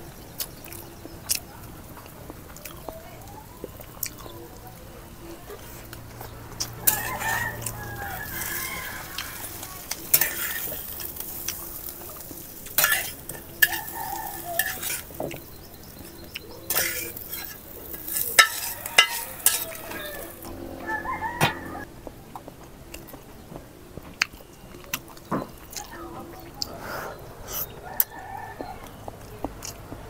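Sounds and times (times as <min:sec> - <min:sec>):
rooster crowing: 0:06.7 - 0:10.0, 0:13.6 - 0:15.0, 0:18.3 - 0:21.9, 0:27.8 - 0:29.1
metal spatula scraping pan: 0:06.8 - 0:07.8, 0:08.4 - 0:11.2, 0:14.6 - 0:15.2, 0:16.7 - 0:21.8
fish sizzling in oil: 0:06.8 - 0:20.4.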